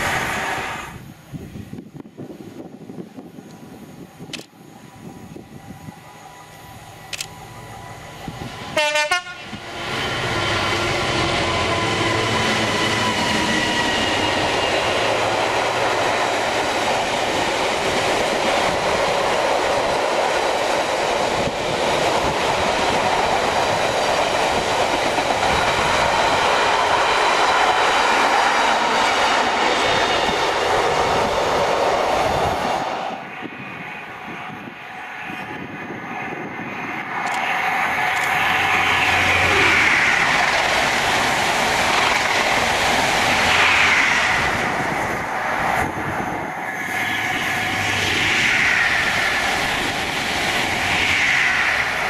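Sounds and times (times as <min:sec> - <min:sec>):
locomotive horn blast: 0:08.8 - 0:09.6
train wheels clattering on rails: 0:39.7 - 0:52.0.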